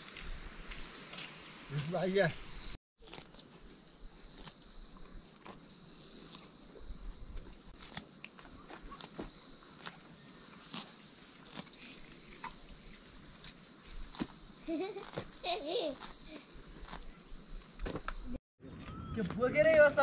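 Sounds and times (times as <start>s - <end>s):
insect chirping: 0.0s - 18.4s
cow tearing grass: 8.8s - 15.3s.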